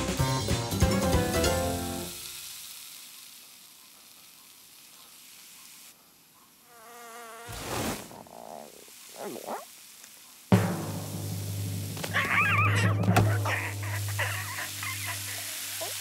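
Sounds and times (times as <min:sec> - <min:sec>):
music: 0:00.0 - 0:02.3, 0:10.5 - 0:14.6
cartoon bee buzzing: 0:06.6 - 0:09.8, 0:12.1 - 0:16.0.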